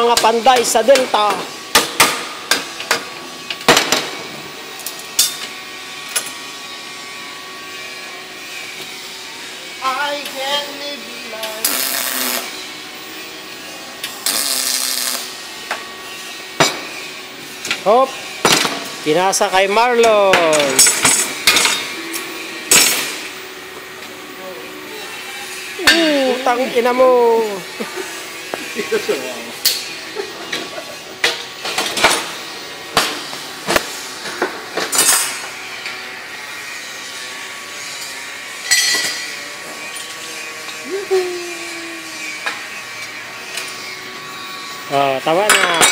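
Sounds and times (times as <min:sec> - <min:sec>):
welding arc hissing: 0:09.8 - 0:13.0, 0:14.0 - 0:16.1
metal tools clanking on workbench: 0:45.4 - 0:45.9.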